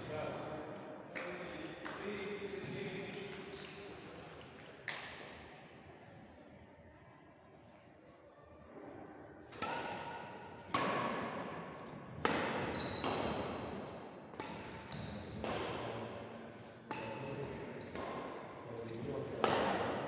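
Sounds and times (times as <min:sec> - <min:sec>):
rackets hitting shuttlecock: 0:09.5 - 0:20.0
shoe squeaks: 0:12.6 - 0:13.8, 0:14.4 - 0:15.8, 0:18.8 - 0:19.4.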